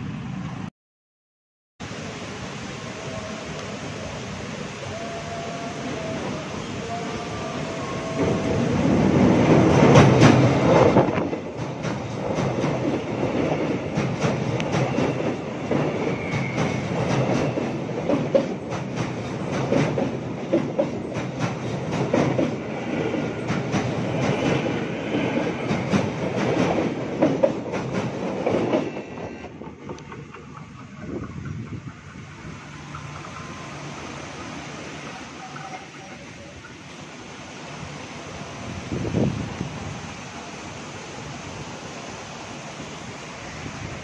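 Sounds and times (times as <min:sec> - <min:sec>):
electric train passing: 0:00.0 - 0:00.7, 0:01.8 - 0:44.0
train wheels clicking over rails: 0:08.0 - 0:37.8.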